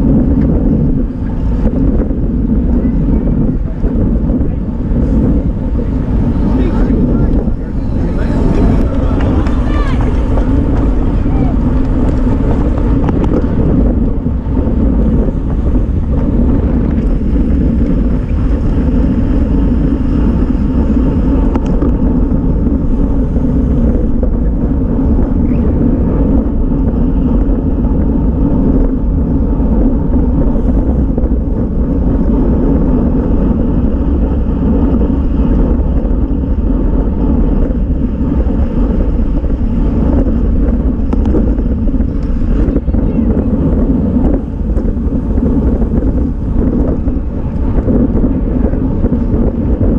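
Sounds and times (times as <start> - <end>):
wind buffeting microphone: 0.0 - 49.9.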